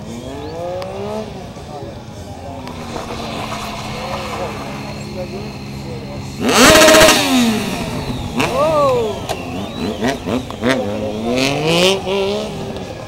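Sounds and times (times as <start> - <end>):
motorcycle engine revving: 2.3 - 13.0
short sharp noise bursts: 2.6 - 7.2.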